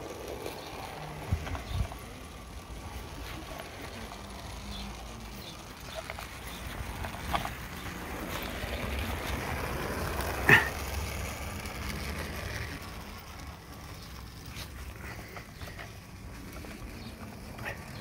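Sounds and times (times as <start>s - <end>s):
wind rumbling on microphone: 0.8s - 2.2s.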